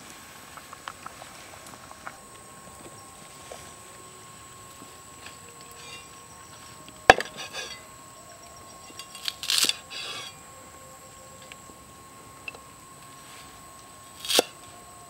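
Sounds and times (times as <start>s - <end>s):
rustle of herbs being handled: 0.0s - 7.8s, 12.9s - 15.0s.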